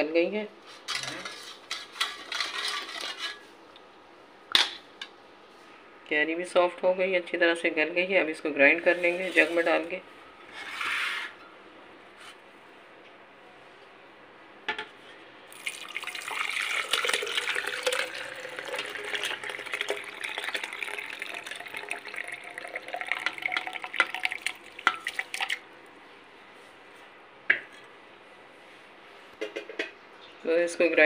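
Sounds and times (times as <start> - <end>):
liquid pouring and splashing: 15.5 - 25.6.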